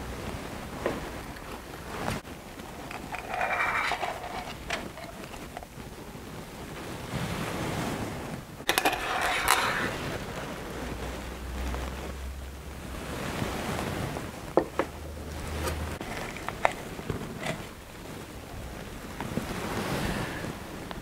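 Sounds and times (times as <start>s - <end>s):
palette knife scraping paint: 2.6s - 5.7s, 8.7s - 10.2s, 15.6s - 17.8s.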